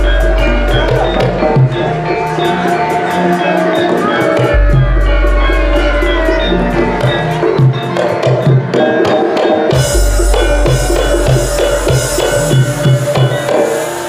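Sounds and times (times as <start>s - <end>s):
deep beat: 0.0s - 14.0s
drums: 0.0s - 14.0s
ringing metal notes: 0.0s - 14.0s
cymbal-like shimmer: 9.8s - 14.0s.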